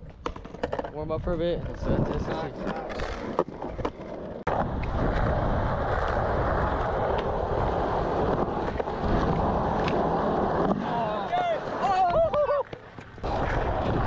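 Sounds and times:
skateboard wheels on concrete: 0:00.0 - 0:14.0
wind buffeting microphone: 0:01.0 - 0:03.8, 0:04.5 - 0:10.6.

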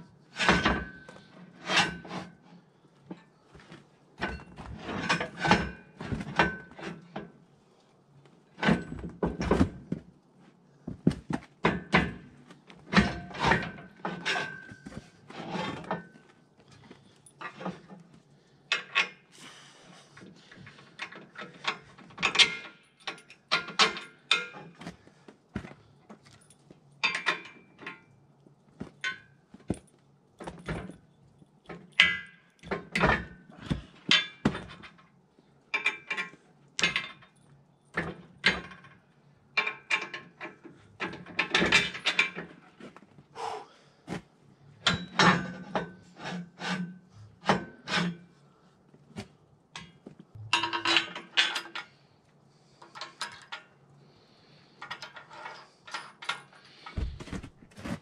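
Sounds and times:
metal parts knocking and clinking: 0:20.6 - 0:24.8, 0:26.3 - 0:28.1, 0:28.8 - 0:35.1, 0:35.7 - 0:39.0, 0:39.6 - 0:42.6, 0:49.8 - 0:52.0, 0:54.8 - 0:57.5.

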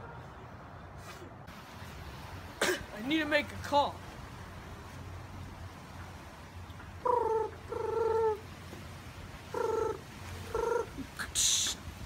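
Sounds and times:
high hiss: 0:11.2 - 0:12.0.

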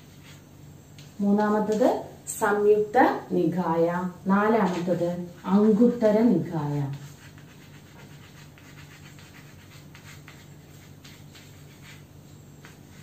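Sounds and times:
chalk scratching on blackboard: 0:00.0 - 0:00.5, 0:06.8 - 0:13.0
steady low hum: 0:00.0 - 0:13.0.

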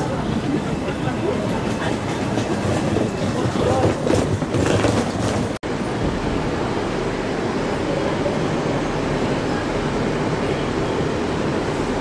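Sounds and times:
passenger chatter: 0:00.0 - 0:12.0
train wheels clacking over rail joints: 0:01.3 - 0:05.6.

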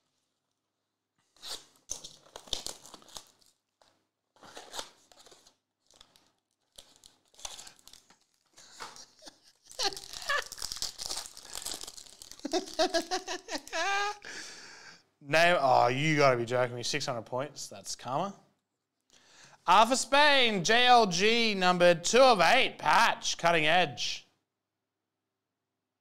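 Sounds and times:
foil wrapper tearing and crinkling: 0:01.4 - 0:13.8.

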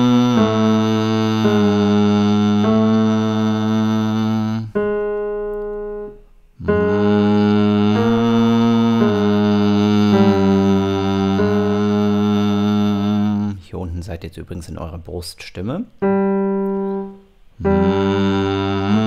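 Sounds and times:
person humming vocal exercise: 0:00.0 - 0:04.8, 0:06.6 - 0:13.7, 0:17.6 - 0:19.0
piano accompaniment: 0:00.0 - 0:13.3, 0:16.0 - 0:19.0.

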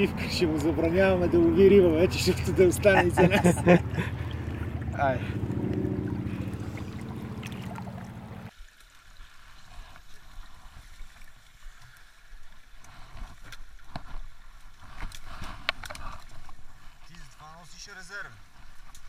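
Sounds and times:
low hum: 0:00.0 - 0:08.5
stream water running: 0:00.0 - 0:19.0.

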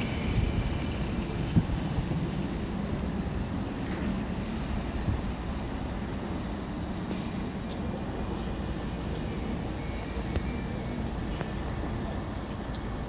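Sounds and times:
high wheel squeal: 0:00.0 - 0:05.0, 0:06.8 - 0:11.8
train rumbling on rails: 0:00.0 - 0:13.0.

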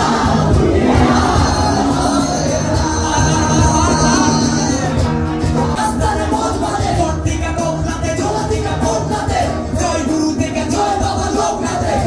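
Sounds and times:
crowd shouting along: 0:00.0 - 0:04.5
live band music: 0:00.0 - 0:12.0
person singing: 0:00.0 - 0:12.0.

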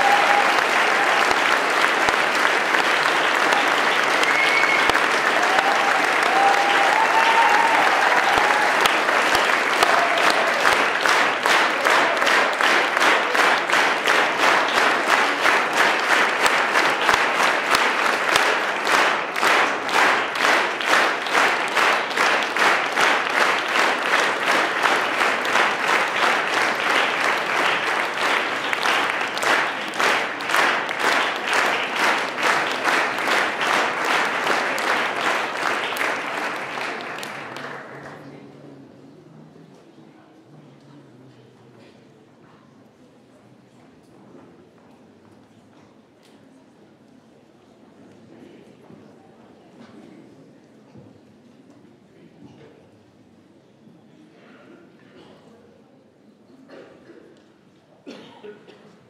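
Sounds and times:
audience applauding: 0:00.0 - 0:38.7.

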